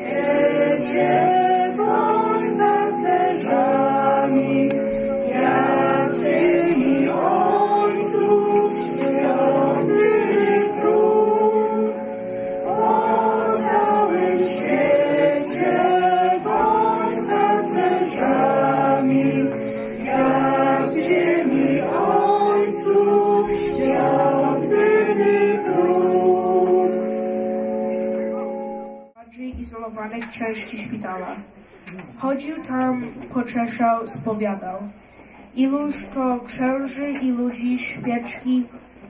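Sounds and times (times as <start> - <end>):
women singing together: 0.0 - 27.1.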